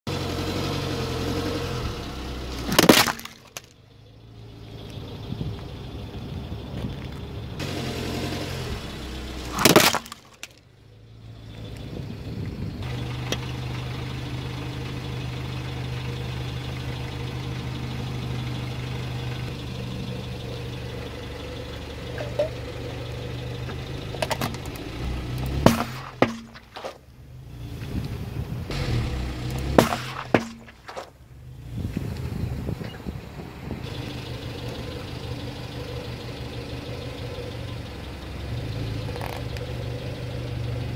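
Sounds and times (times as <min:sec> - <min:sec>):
car engine running low: 0:00.0 - 0:40.9
plastic basket cracking: 0:02.6 - 0:03.7, 0:09.6 - 0:10.6
water balloon bursting: 0:09.5 - 0:10.5, 0:25.6 - 0:27.0, 0:29.6 - 0:31.2.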